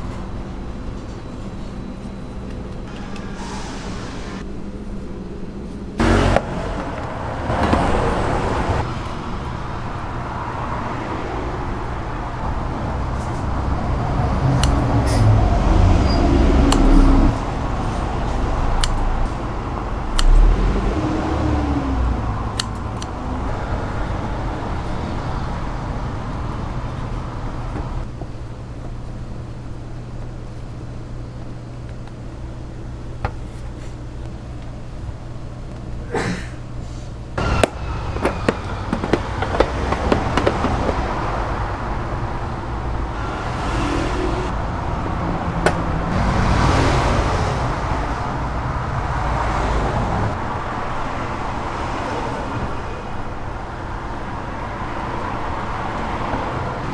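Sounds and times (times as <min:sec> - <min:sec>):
road traffic rumbling: 0:00.0 - 0:56.9
sharp clicks and knocks: 0:37.6 - 0:41.0.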